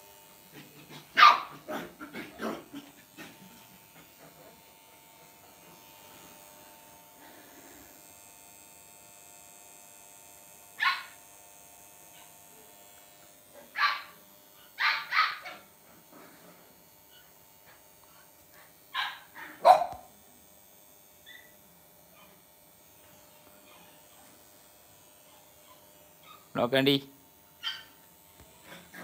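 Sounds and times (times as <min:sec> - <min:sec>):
puppies barking in sharp yaps: 0:01.2 - 0:01.9, 0:10.8 - 0:11.2, 0:14.8 - 0:15.6, 0:19.0 - 0:20.1, 0:27.6 - 0:28.0.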